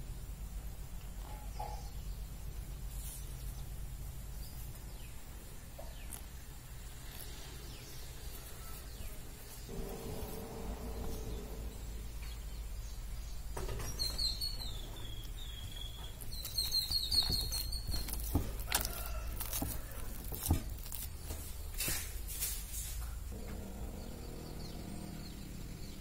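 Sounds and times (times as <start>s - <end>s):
steady low hum: 0.0s - 16.5s, 17.4s - 26.0s
hand kneading dough: 14.7s - 23.3s.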